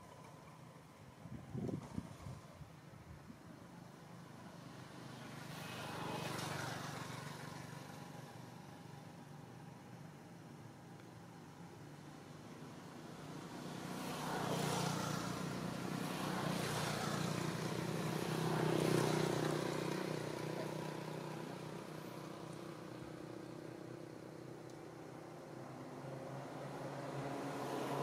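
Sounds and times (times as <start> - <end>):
vehicle engine passing by: 4.6 - 8.9, 13.2 - 23.9, 25.4 - 28.0.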